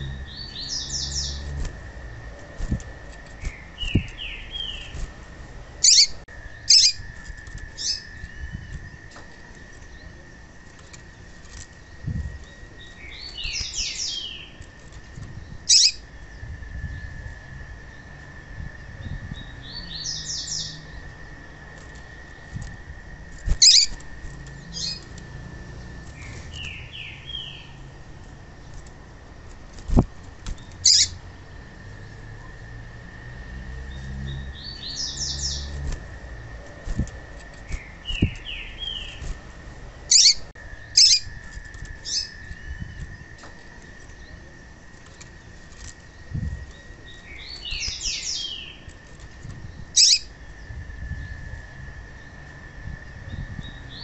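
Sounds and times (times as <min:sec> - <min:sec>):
faint high hum: 0:00.0 - 0:54.0.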